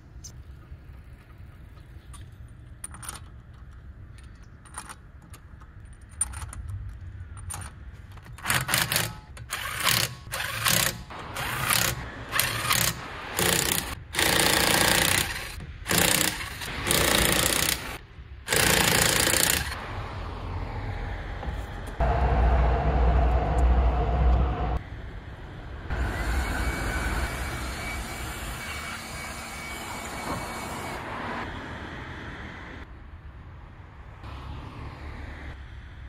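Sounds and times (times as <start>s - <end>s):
impact wrench bursts: 8.4s - 19.8s.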